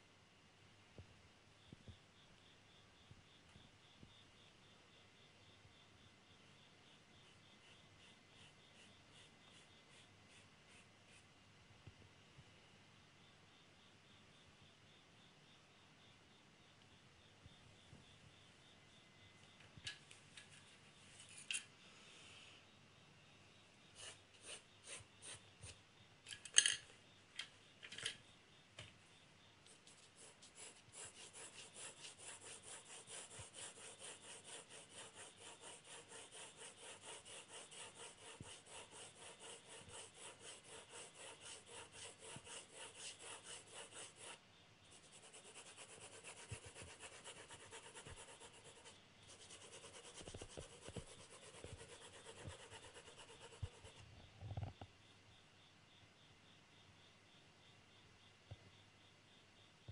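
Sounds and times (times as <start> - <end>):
pencil scratching on paper: 7.2 - 11.3, 24.0 - 25.8, 29.7 - 54.0.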